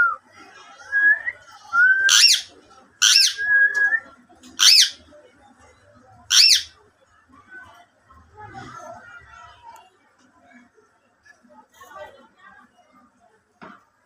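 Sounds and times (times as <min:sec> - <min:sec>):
parakeet screeching calls: 0:02.1 - 0:03.4, 0:04.6 - 0:05.0, 0:06.3 - 0:06.7.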